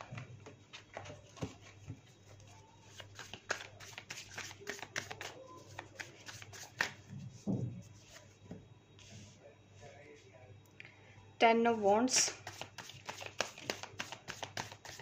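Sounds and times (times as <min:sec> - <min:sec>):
cards being shuffled: 0:02.4 - 0:07.1, 0:12.3 - 0:15.0.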